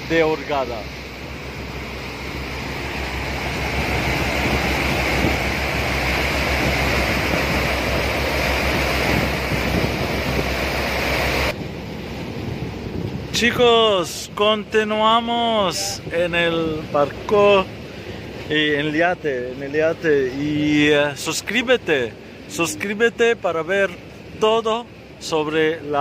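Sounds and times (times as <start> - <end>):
low rumble: 0.0 - 13.4
water churning in boat wake: 0.0 - 26.0
wind buffeting microphone: 1.0 - 14.8.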